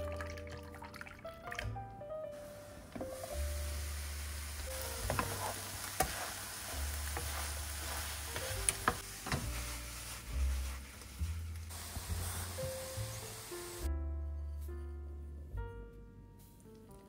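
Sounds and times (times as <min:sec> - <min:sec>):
soft background music: 0:00.0 - 0:17.0
food sizzling in a frying pan: 0:02.4 - 0:13.9.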